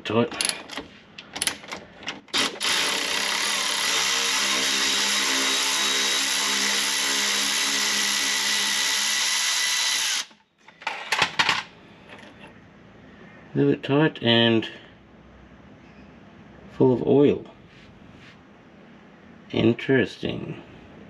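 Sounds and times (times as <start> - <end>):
electric ratchet motor running: 2.3 - 10.4.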